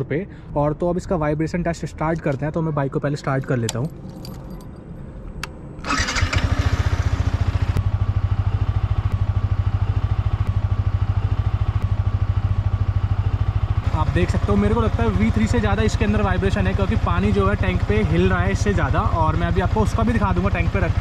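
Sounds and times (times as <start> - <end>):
high ignition whine: 5.2 - 21.0
motorcycle engine starting and idling: 5.4 - 21.0.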